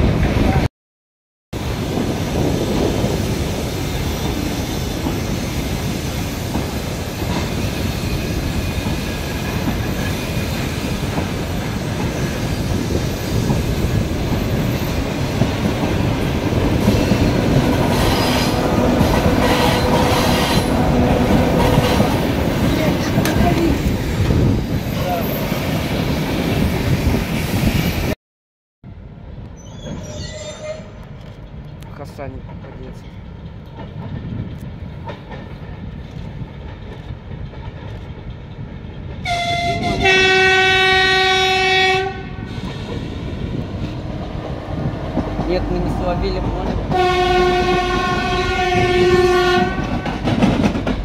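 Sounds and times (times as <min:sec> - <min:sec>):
train wheels rumbling on rails: 0:01.6 - 0:28.2, 0:29.2 - 0:51.0
wheels clicking over rail joints: 0:31.0 - 0:40.0, 0:49.6 - 0:51.0.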